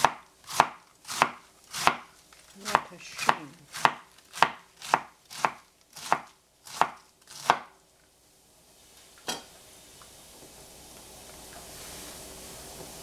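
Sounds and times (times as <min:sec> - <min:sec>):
knife chopping on cutting board: 0:00.0 - 0:02.1, 0:02.7 - 0:07.7
faint hiss: 0:07.8 - 0:13.0.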